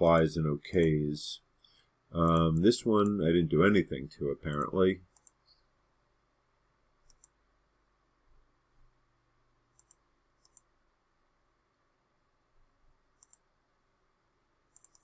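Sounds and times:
computer mouse double clicks: 14.8 - 15.0.

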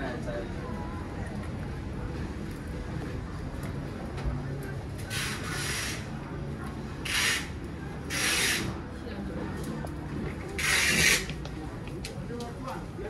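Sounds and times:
low hum and murmur: 0.0 - 13.0.

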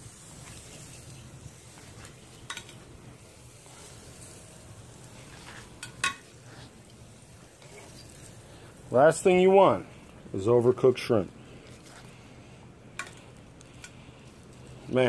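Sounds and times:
faint sizzling: 0.0 - 15.0
metal tongs clinking on grill: 2.2 - 2.8, 5.7 - 6.4, 13.0 - 14.0.

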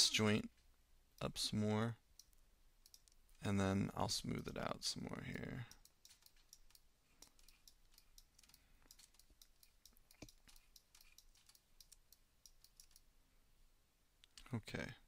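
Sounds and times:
mouse and keyboard clicking: 2.2 - 3.2, 5.4 - 13.1.

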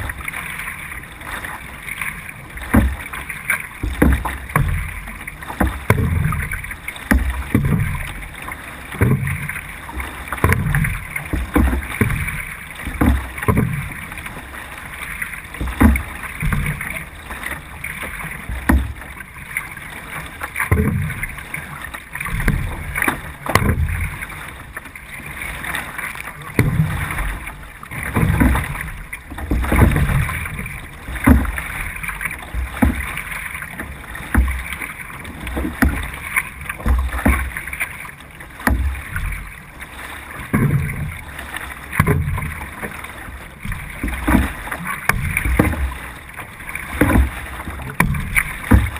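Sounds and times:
paddle strokes splashing: 0.0 - 48.9
water rushing along hull: 0.0 - 48.9.

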